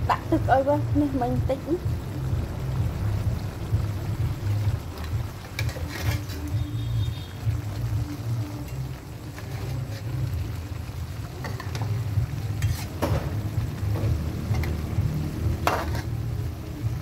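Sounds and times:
low rumble: 0.0 - 5.5
metal ladle scraping wok: 5.0 - 7.2, 8.6 - 10.6, 11.3 - 14.9, 15.5 - 16.4.

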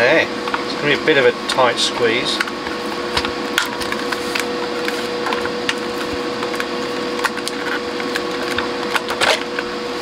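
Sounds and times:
steady background hum: 0.0 - 10.0.

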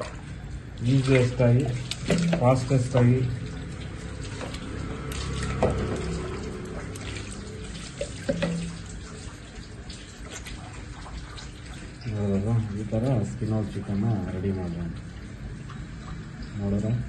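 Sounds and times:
running water splashing: 0.0 - 17.0
water dripping on stone: 0.8 - 9.2.

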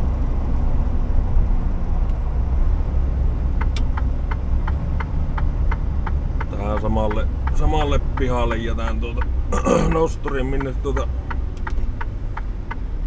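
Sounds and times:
truck engine drone: 0.0 - 13.0
turn signal ticking: 3.5 - 13.0.

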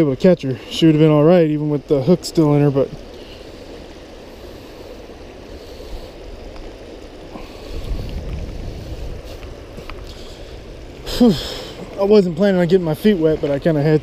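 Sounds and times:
creek water rushing over rocks: 0.0 - 14.0
wind rumble on microphone: 2.8 - 14.0.

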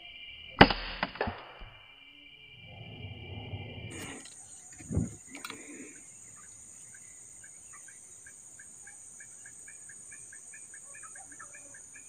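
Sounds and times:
steady high hiss: 1.8 - 10.9.

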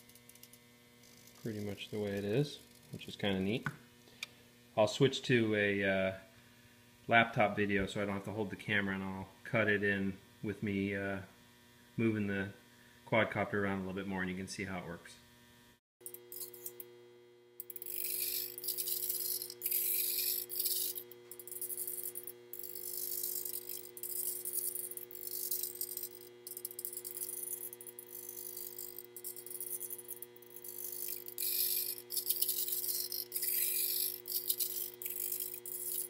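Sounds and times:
gimbal servos rattling and whirring: 0.0 - 3.1, 17.6 - 36.0
electrical hum: 0.0 - 36.0.

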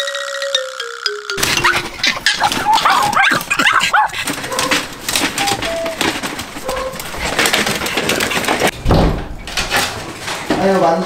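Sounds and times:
dogs whining: 1.4 - 7.4
plastic pet carriers rattling: 1.4 - 8.8
low thump: 8.8 - 9.3.

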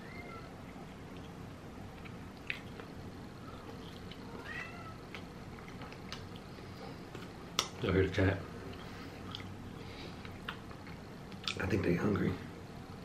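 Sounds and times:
cat meowing faintly: 4.3 - 5.0.

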